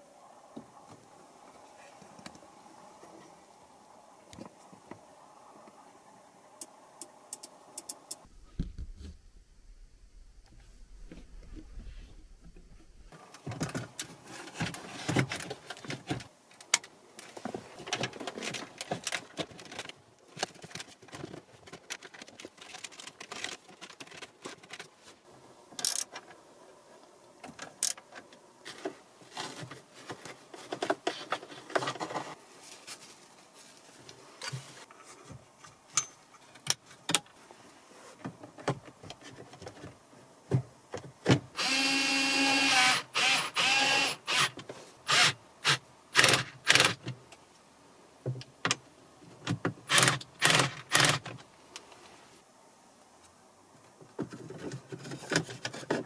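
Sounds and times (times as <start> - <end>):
screwdriver turning screws: 41.6 - 47.0, 49.9 - 51.4.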